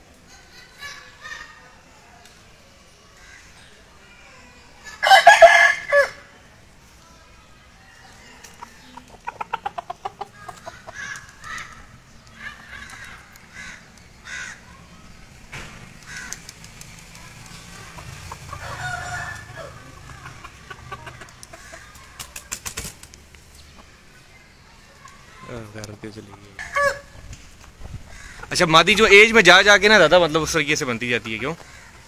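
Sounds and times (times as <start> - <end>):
chickens clucking: 7.8 - 14.0, 15.0 - 32.0.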